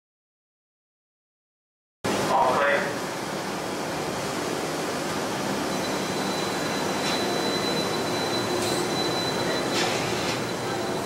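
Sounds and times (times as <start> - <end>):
thin steady high tone: 5.6 - 11.0.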